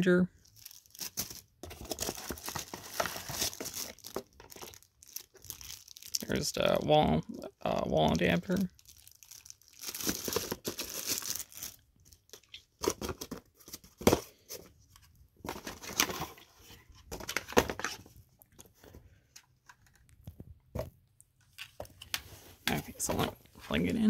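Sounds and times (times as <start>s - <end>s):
plastic wrapping rustling: 0.4s - 6.8s, 7.7s - 14.5s.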